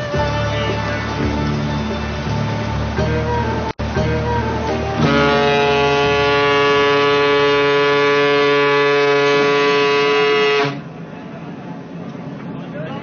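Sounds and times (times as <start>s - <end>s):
ship's whistle blast: 5.0s - 10.8s.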